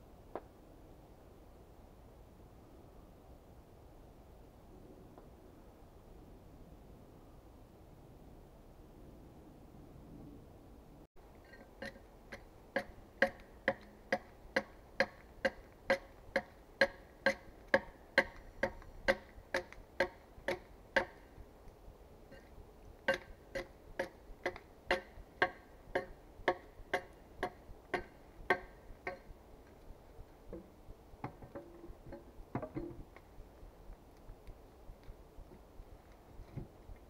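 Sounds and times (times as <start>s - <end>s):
axe chopping log: 11.8s - 21.2s, 23.1s - 29.3s.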